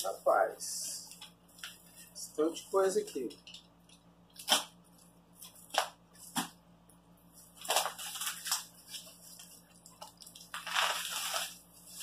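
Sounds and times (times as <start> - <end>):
paper crinkling and tearing: 7.4 - 12.0.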